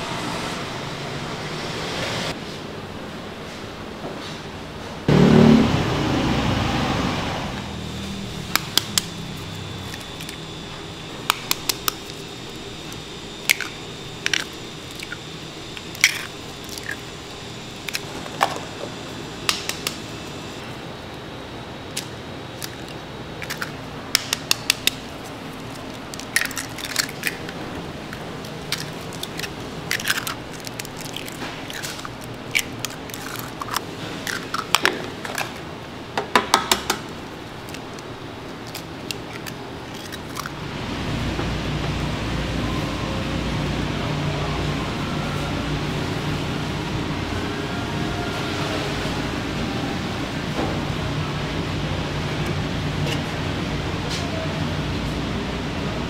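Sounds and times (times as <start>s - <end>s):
eggshells tapping and crackling: 15.8s - 17.1s, 25.6s - 35.5s.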